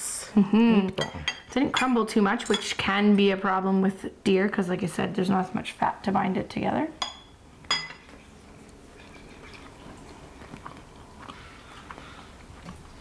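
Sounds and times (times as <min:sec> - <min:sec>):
quiet chewing: 0:08.1 - 0:13.0.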